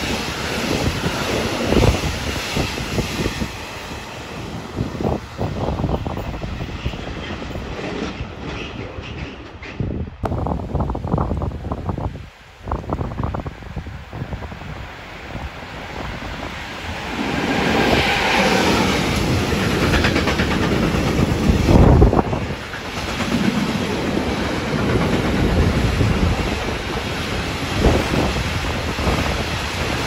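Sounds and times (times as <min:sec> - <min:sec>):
freight train rumble: 0:00.0 - 0:30.0.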